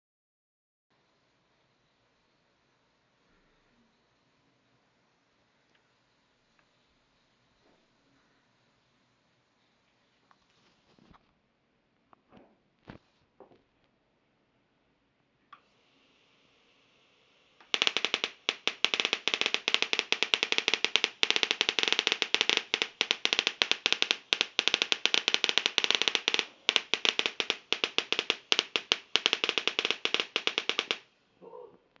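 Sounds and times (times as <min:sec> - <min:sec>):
faint high electrical whine: 0:00.9 - 0:32.0
high-voltage sparks crackling: 0:17.6 - 0:31.1.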